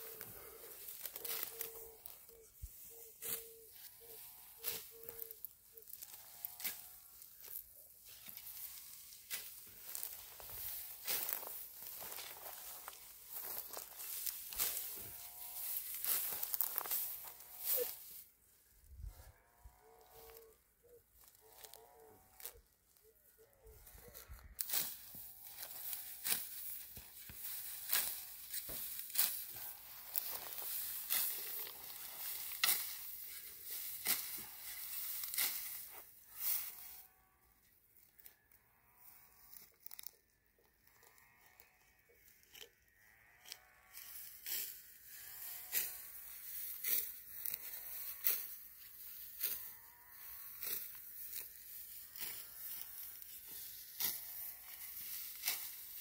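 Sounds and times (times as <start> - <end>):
wheat stalks crunching and rustling: 0.0 - 37.4, 38.0 - 56.0
sharp crackle of cutting: 24.6 - 36.8, 43.4 - 56.0.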